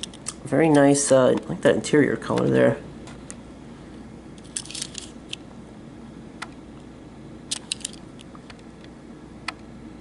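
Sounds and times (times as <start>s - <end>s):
low room hum: 0.0s - 10.0s
toy car clicks and rustles: 4.4s - 5.2s, 7.5s - 8.0s.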